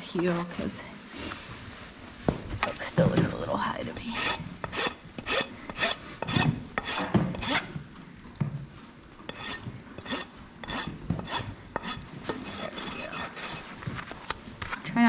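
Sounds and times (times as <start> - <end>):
rasp filing hoof: 4.1 - 7.8, 9.3 - 14.2.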